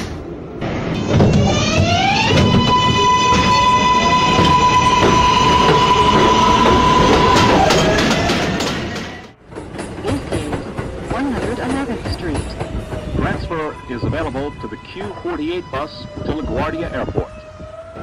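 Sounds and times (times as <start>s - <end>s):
subway train motor whine: 0.0s - 18.0s
wheels clattering over rail joints: 0.8s - 13.2s.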